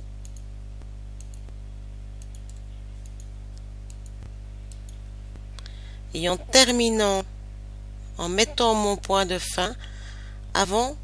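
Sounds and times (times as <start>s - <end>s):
low electrical hum: 0.0s - 11.0s
computer mouse clicks: 0.2s - 0.5s, 1.2s - 1.6s, 2.2s - 5.7s.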